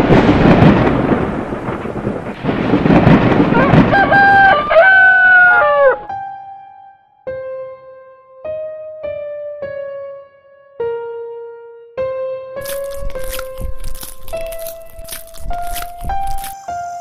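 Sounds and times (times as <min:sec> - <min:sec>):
thunder rumbling: 0:00.0 - 0:05.2
rooster crowing: 0:03.6 - 0:06.1.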